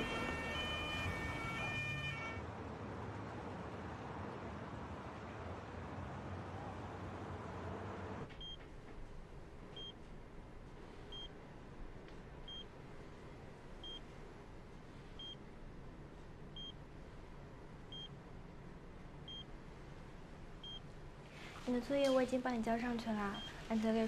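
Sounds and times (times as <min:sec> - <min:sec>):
patient monitor beeping: 0:00.0 - 0:02.4, 0:11.1 - 0:11.4, 0:16.6 - 0:16.8, 0:17.9 - 0:18.2, 0:19.3 - 0:19.5, 0:23.2 - 0:23.7.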